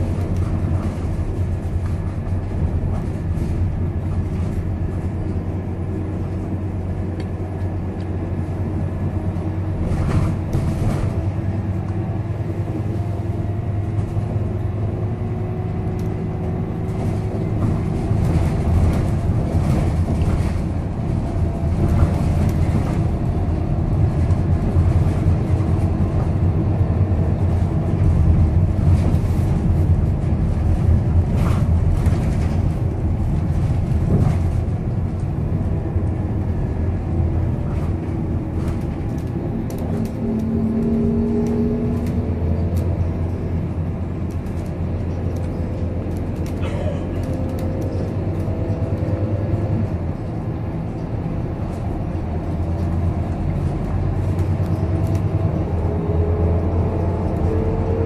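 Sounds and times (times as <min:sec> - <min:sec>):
bus diesel engine droning: 0:00.0 - 0:58.0.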